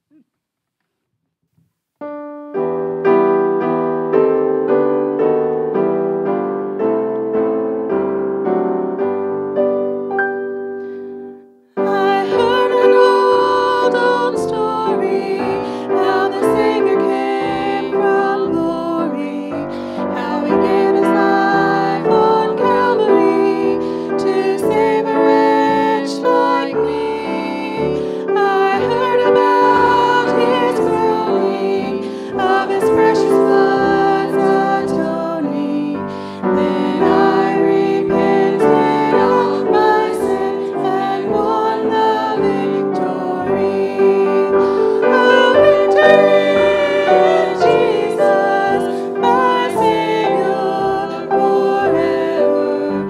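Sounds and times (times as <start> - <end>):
piano accompaniment: 2.0 - 53.0
choir singing a hymn: 11.9 - 53.0.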